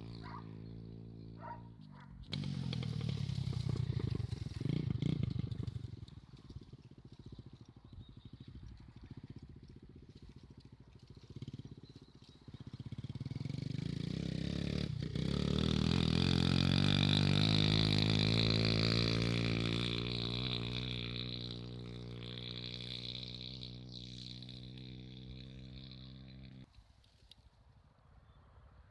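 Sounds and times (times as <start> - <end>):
distant engine buzzing: 0.0 - 26.7
motorbike engine at high revs: 0.0 - 26.7.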